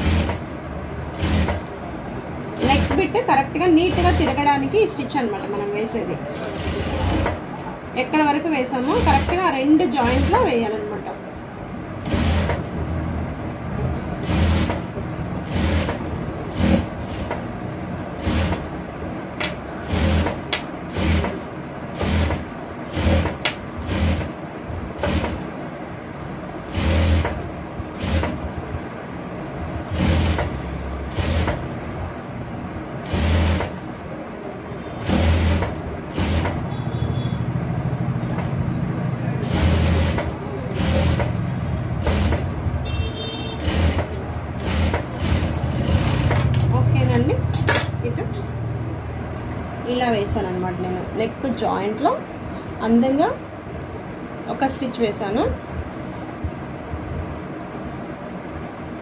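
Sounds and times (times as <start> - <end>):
sewing machine stitching: 0.0 - 1.8, 2.6 - 4.6, 6.4 - 7.5, 8.8 - 10.6, 12.0 - 12.8, 14.2 - 18.8, 19.8 - 24.4, 25.0 - 25.5, 26.7 - 28.4, 29.8 - 31.7, 33.0 - 33.9, 35.0 - 36.7, 39.4 - 42.6, 43.5 - 47.9
steady low hum: 0.0 - 59.0.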